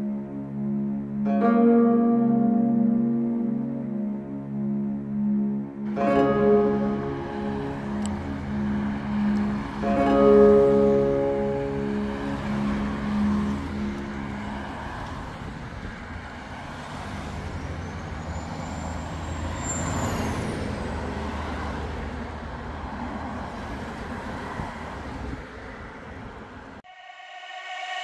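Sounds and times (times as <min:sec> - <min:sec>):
background music: 0:00.0 - 0:15.0
vehicles passing: 0:00.0 - 0:28.0
high squeal: 0:17.6 - 0:21.0, 0:26.8 - 0:28.0.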